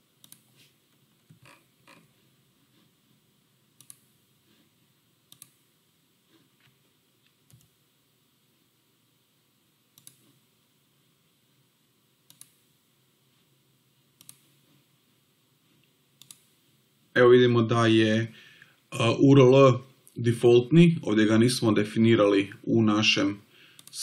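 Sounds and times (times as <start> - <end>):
faint room hiss: 0.0 - 24.0
computer mouse clicks: 0.2 - 0.6, 3.8 - 4.1, 5.3 - 5.6, 7.4 - 7.8, 9.9 - 10.4, 12.2 - 12.6, 14.2 - 14.6, 16.2 - 16.6, 23.7 - 24.0.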